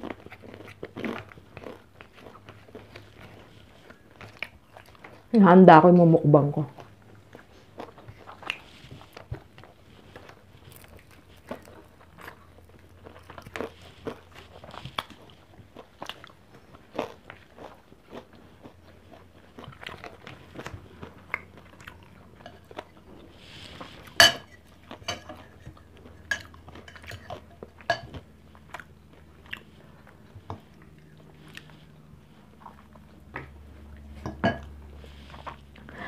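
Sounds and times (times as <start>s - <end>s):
person chewing food: 0.0s - 5.3s, 6.7s - 36.0s
fork clicking on plates: 24.2s - 28.2s.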